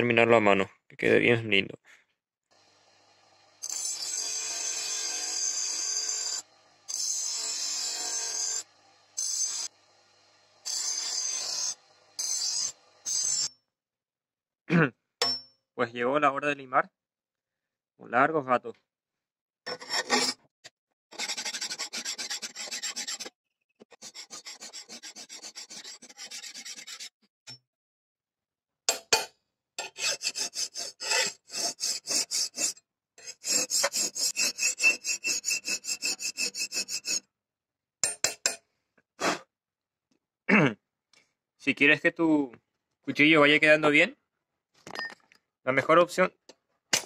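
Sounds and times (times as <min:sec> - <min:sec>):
file rasping on steel blade: 0:03.6 - 0:09.8, 0:10.6 - 0:13.5, 0:19.7 - 0:20.4, 0:21.1 - 0:27.2, 0:29.8 - 0:37.3.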